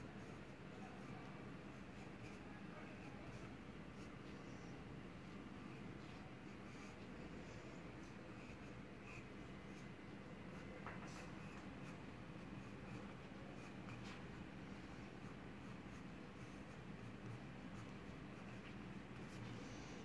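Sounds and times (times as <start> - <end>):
pencil scratching on paper: 0.2 - 20.0.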